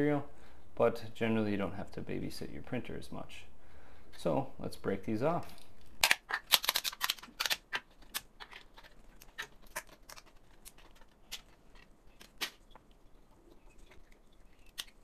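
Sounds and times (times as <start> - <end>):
plastic parts snapping: 5.8 - 12.8.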